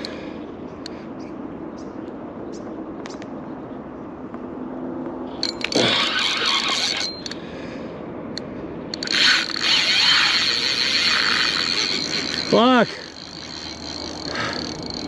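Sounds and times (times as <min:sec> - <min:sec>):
fishing reel buzzing: 0:05.4 - 0:07.4, 0:08.9 - 0:15.0.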